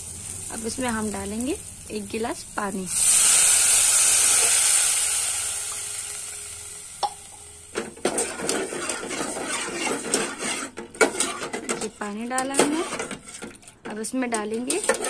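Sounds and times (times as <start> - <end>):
water sizzling in hot pot: 0.0 - 11.4
skimmer scraping a pot: 8.0 - 15.0.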